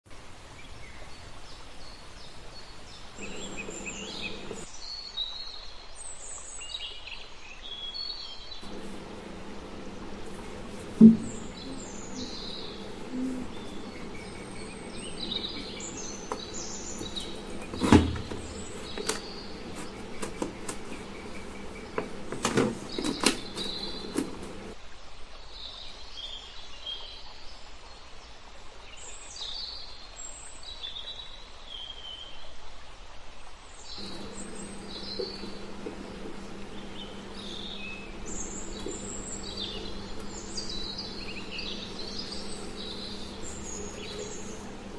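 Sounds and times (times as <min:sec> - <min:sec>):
birds chirping: 0:01.8 - 0:04.8, 0:08.5 - 0:24.8, 0:34.0 - 0:44.9
low steady hum: 0:03.1 - 0:04.7, 0:08.6 - 0:24.8, 0:34.0 - 0:44.9.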